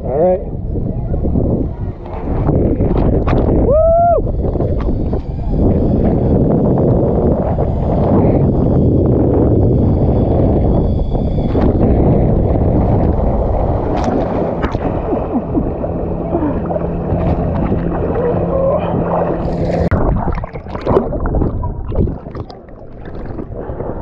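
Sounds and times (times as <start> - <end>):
underwater gurgling: 0.0 - 24.0
water splashing and sloshing: 12.5 - 24.0.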